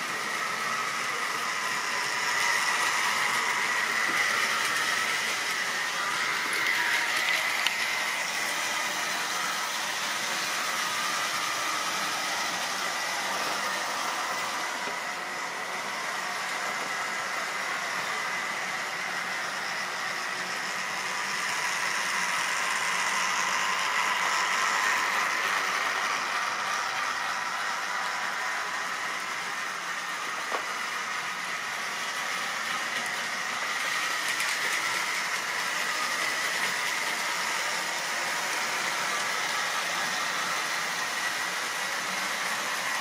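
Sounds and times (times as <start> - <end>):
electric motor whine: 0.0 - 43.0.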